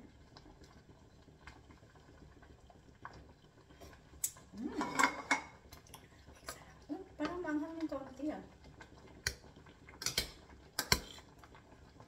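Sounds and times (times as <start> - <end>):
fork clicking against pot: 10.0 - 11.2.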